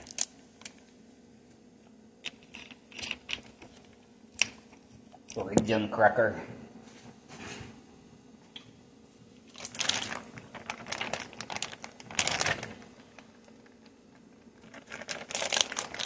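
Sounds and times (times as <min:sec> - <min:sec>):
plastic bag crinkling: 0:00.0 - 0:00.8, 0:09.5 - 0:16.0.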